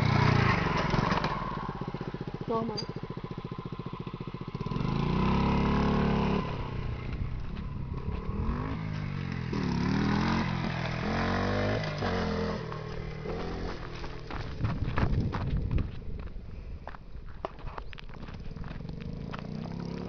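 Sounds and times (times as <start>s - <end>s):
small motorcycle engine revving: 0.0s - 14.5s, 18.7s - 20.0s.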